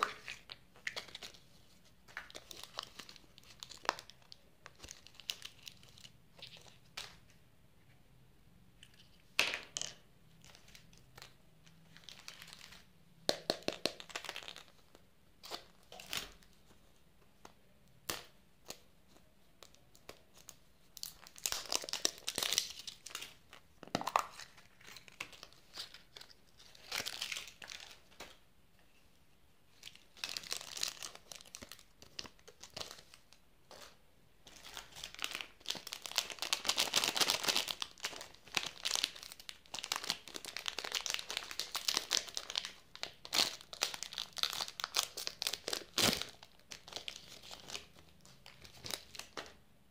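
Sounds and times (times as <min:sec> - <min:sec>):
plastic wrappers crinkling: 0:02.1 - 0:07.2, 0:10.4 - 0:16.5, 0:19.6 - 0:28.4, 0:29.7 - 0:49.6.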